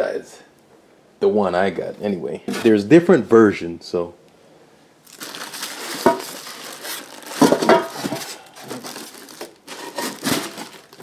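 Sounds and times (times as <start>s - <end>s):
plastic wrapping crinkling: 5.0s - 11.0s.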